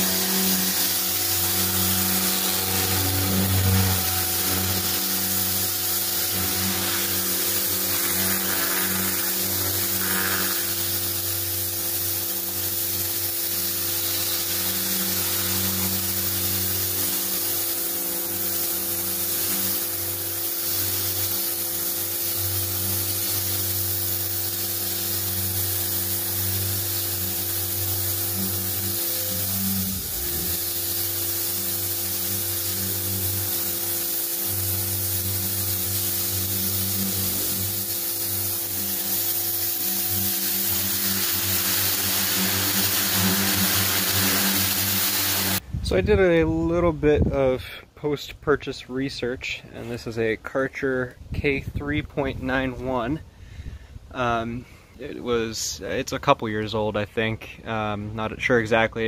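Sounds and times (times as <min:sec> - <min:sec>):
pressure washer motor hum: 0:00.0 - 0:45.6
water jet hissing: 0:00.0 - 0:45.6.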